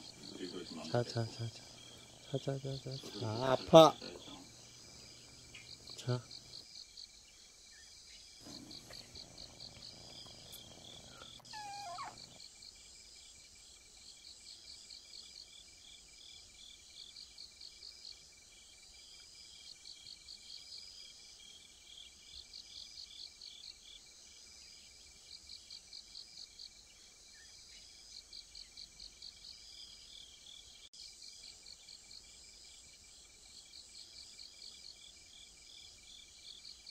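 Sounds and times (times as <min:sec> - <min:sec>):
high insect trill: 0:00.0 - 0:36.9
insects chirping in bursts: 0:00.0 - 0:36.9
falling squeak: 0:11.4 - 0:12.2.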